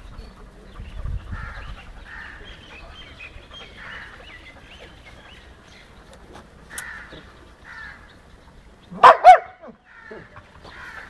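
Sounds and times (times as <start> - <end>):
birds chirping: 0.0 - 11.0
dogs yelping: 8.9 - 11.0.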